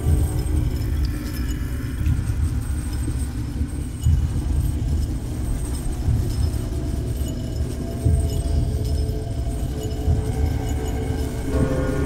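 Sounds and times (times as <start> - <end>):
deep rumbling low drone: 8.2 - 12.0.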